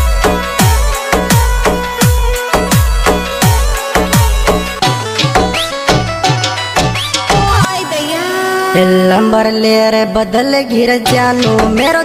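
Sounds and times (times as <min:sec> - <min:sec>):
held melody notes: 0:00.0 - 0:09.3.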